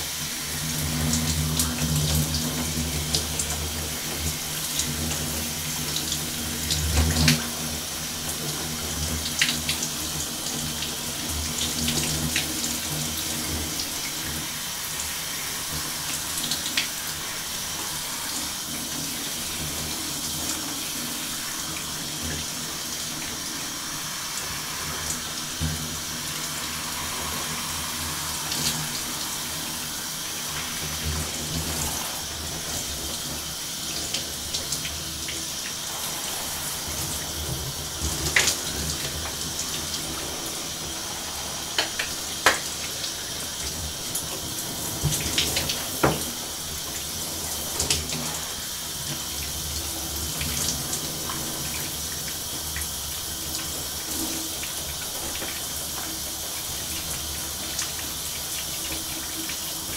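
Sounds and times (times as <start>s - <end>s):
shower spray into tub: 0.0s - 59.9s.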